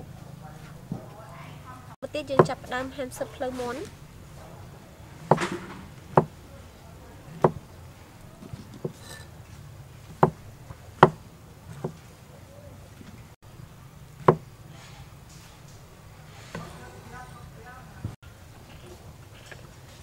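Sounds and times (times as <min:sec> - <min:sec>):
cleaver chopping on wooden block: 0:05.3 - 0:06.4, 0:07.4 - 0:07.6, 0:10.2 - 0:10.4, 0:11.0 - 0:11.2, 0:14.2 - 0:14.5.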